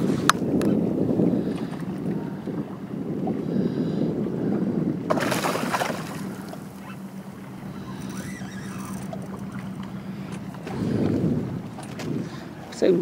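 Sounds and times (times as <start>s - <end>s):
steady low hum: 0.0s - 13.0s
water lapping: 0.0s - 13.0s
fish splashing at surface: 5.1s - 6.6s.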